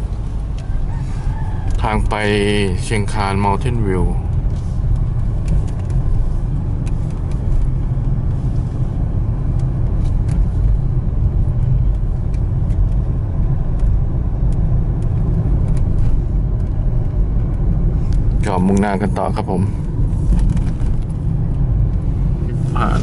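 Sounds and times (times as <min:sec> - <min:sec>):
car engine and tyres rumbling: 0:00.0 - 0:23.0.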